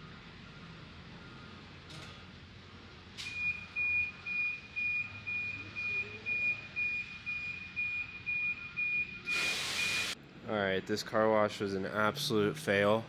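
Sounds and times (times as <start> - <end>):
electronic beeper short high beeps: 3.3 - 10.2.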